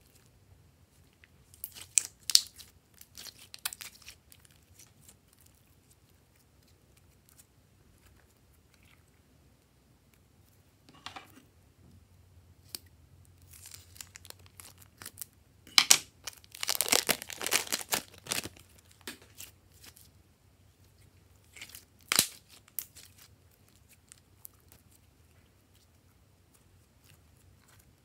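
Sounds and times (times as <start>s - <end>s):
sticky slime crackles: 1.0s - 9.1s, 13.4s - 20.1s, 20.8s - 28.0s
plastic bag crinkling and tearing: 13.4s - 15.2s, 16.0s - 19.9s.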